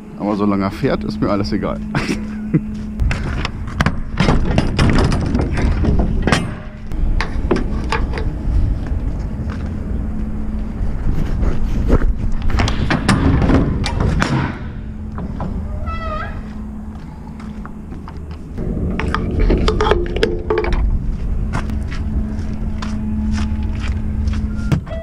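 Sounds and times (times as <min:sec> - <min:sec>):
diesel truck engine running: 0:00.0 - 0:15.8, 0:16.4 - 0:24.9
clunks and rattles: 0:03.0 - 0:09.8, 0:11.4 - 0:16.7, 0:17.4 - 0:22.9
short wavering squeal: 0:14.9 - 0:17.9, 0:21.4 - 0:25.0.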